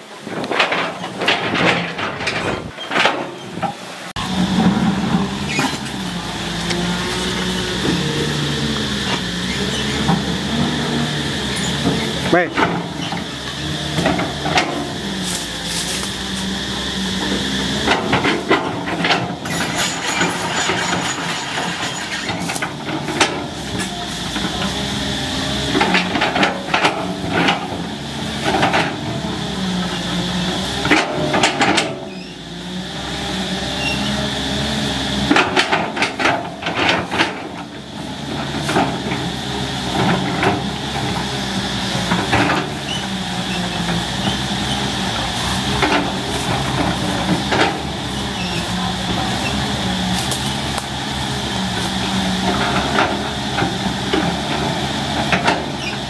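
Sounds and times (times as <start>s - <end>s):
diesel engine running under load: 0.0s - 56.0s
branches cracking and snapping: 15.2s - 16.6s, 50.1s - 51.0s.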